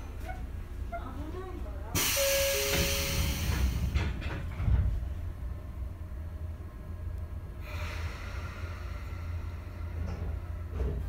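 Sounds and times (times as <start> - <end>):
train low rumble: 0.0 - 11.0
knocks and thump: 2.7 - 5.0.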